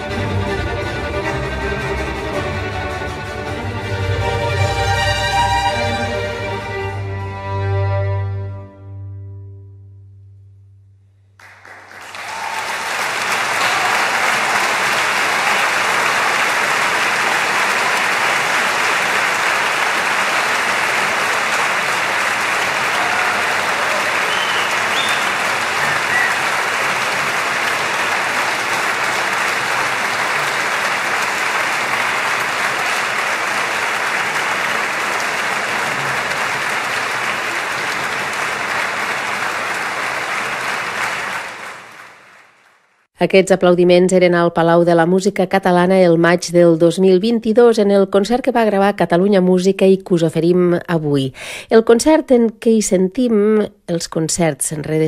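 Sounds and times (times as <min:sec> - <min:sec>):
audience applauding: 0:11.4 - 0:43.1.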